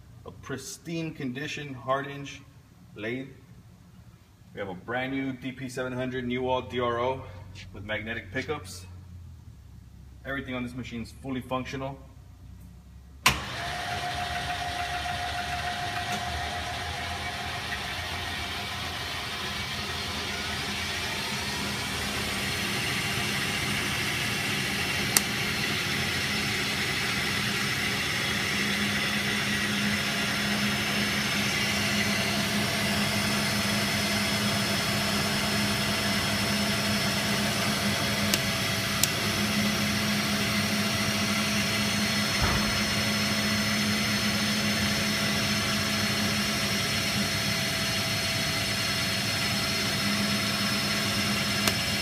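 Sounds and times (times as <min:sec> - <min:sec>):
lathe spindle humming: 0:13.3 - 0:52.0.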